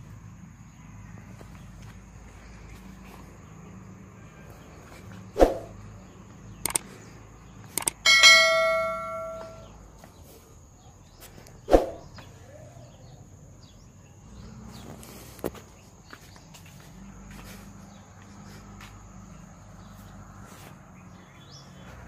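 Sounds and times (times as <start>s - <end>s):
clicks: 6.6s - 6.9s, 7.7s - 9.6s
bell ding: 8.0s - 9.7s.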